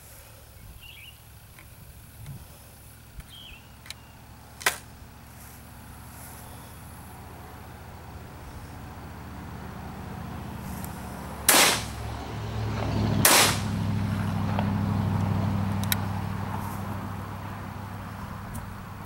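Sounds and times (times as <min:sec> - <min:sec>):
shotgun shots with echo: 0:11.5 - 0:12.0, 0:13.2 - 0:13.7.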